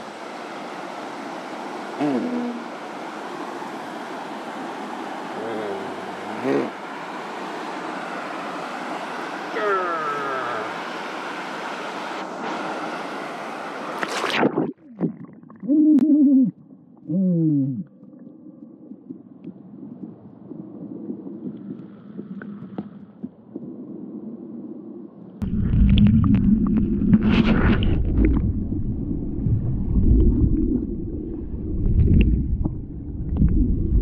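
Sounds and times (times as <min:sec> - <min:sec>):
water at river surface: 0:00.0 - 0:34.0
wind: 0:00.0 - 0:34.0
muffled underwater hush: 0:01.8 - 0:23.9
churning rush of bubbles: 0:13.9 - 0:15.8, 0:25.4 - 0:34.0.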